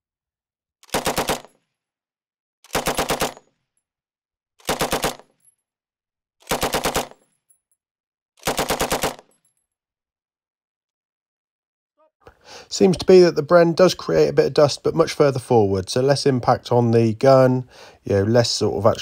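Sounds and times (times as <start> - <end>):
machine gun firing bursts: 0.9 - 1.6, 2.7 - 3.4, 4.6 - 5.3, 6.4 - 7.2, 8.4 - 9.3.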